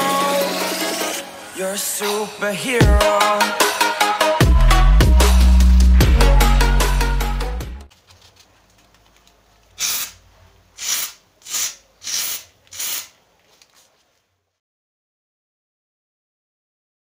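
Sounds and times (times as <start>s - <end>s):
aerosol foam spray hissing: 10.8s - 13.1s.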